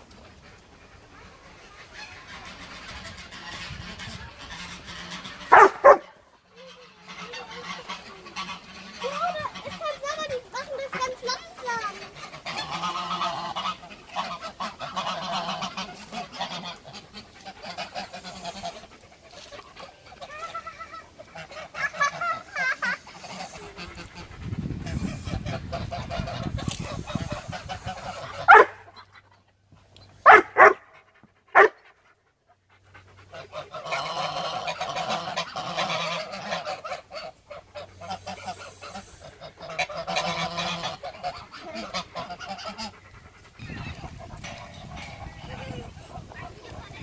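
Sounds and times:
geese honking and gabbling: 0.0 - 47.0
loud goose honks: 2.0 - 6.0, 12.2 - 18.9, 27.2 - 28.8, 30.3 - 30.8, 31.6 - 31.8, 33.3 - 43.0.

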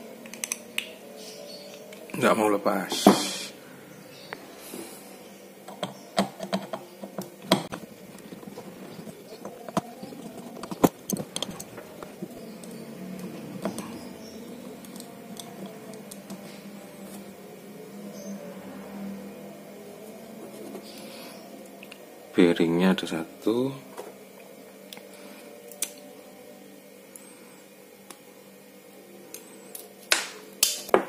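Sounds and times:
small metal parts clicking: 0.2 - 0.9.

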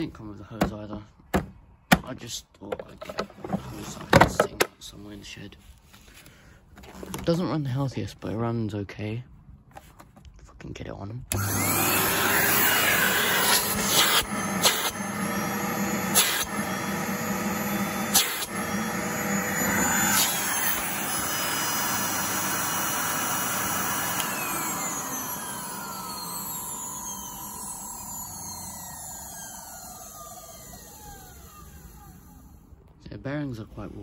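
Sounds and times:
vacuum cleaner motor whining: 11.3 - 32.7.

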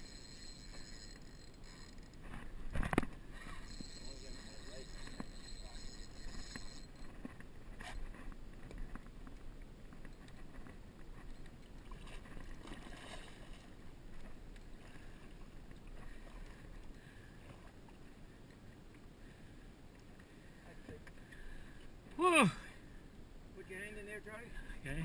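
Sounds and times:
water splashing against boat: 0.0 - 19.2.

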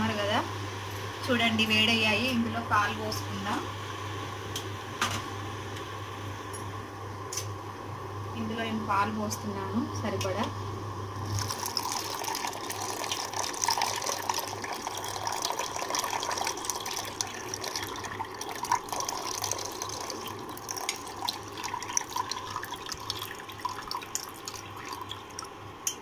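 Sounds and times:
steady low hum: 0.0 - 26.0
milk pouring into saucepan: 11.3 - 25.5.

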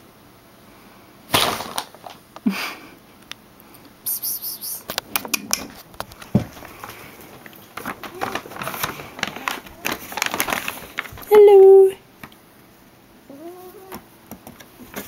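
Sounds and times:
paper bag rustling and crackling: 5.9 - 11.9.

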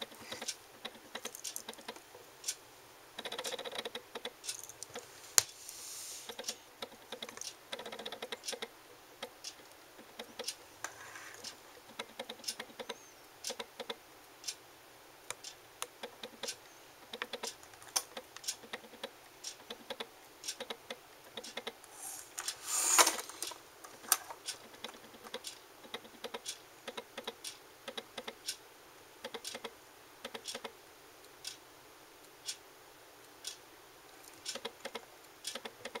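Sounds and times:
rustling burst: 21.9 - 24.5.

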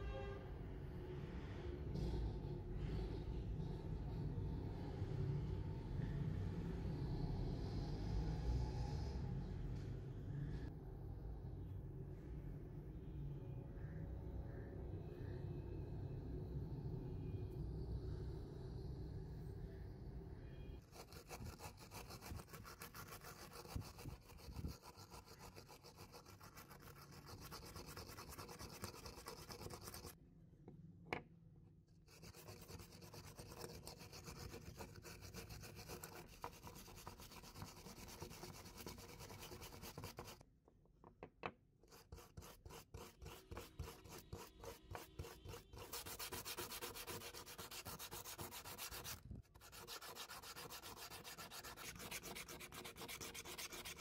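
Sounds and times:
sandpaper rubbing metal: 20.9 - 30.1, 32.1 - 40.4, 42.0 - 54.0.

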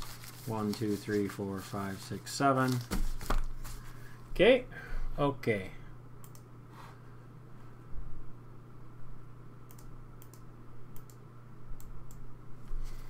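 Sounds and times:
low electrical hum: 0.0 - 13.0
computer keys clicking: 9.7 - 10.4.

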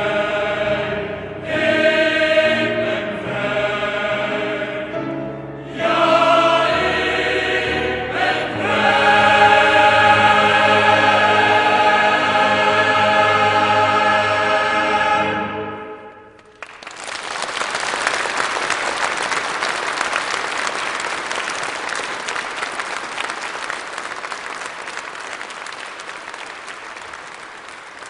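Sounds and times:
choir chord: 0.0 - 16.4
audience applauding: 16.3 - 28.0.

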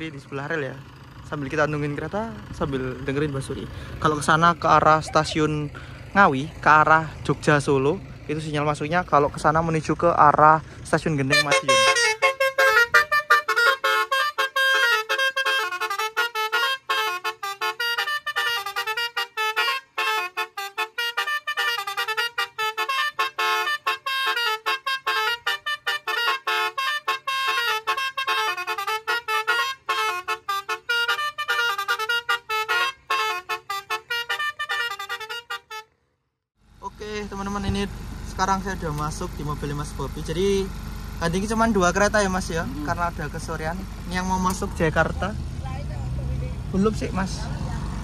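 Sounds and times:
car horns playing melody: 11.1 - 36.0.

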